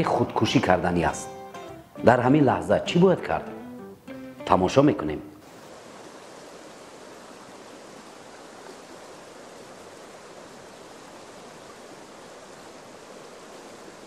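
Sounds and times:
river rushing: 0.0s - 14.0s.

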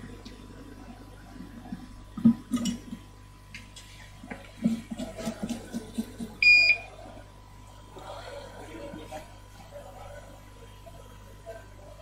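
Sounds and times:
short electronic beep: 6.4s - 6.8s.

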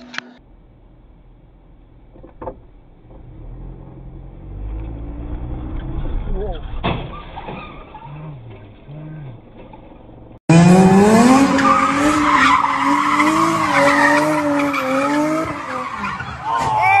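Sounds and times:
car engine at high revs: 0.0s - 6.6s, 10.2s - 16.4s
street traffic: 0.0s - 17.0s.

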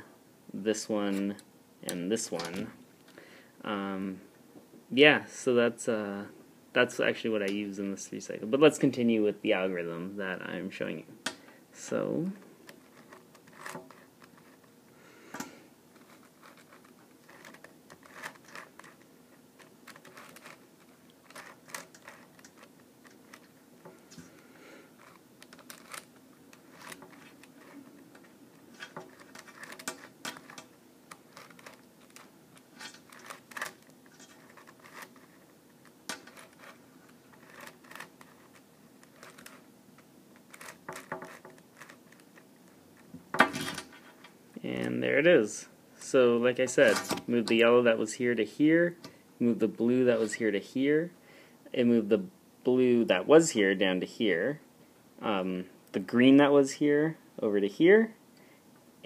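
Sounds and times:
plastic puzzle clicking and scraping: 12.6s - 14.7s, 16.0s - 24.4s, 25.0s - 43.1s.

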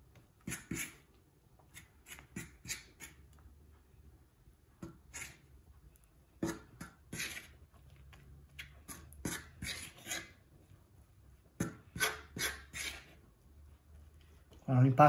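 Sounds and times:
fork beating eggs into flour: 0.0s - 3.6s, 4.8s - 14.7s.

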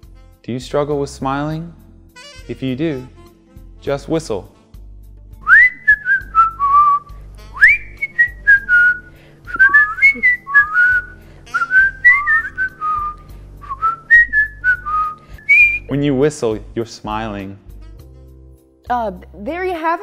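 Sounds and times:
man whistling a tune: 5.4s - 15.9s.

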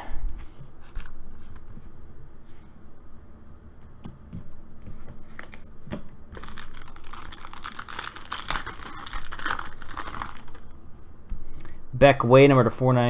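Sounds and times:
foil wrapper crinkling: 6.3s - 10.7s.

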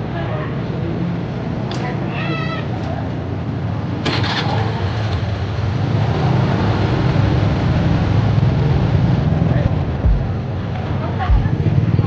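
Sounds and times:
vehicle engine low rumble: 6.5s - 12.0s.

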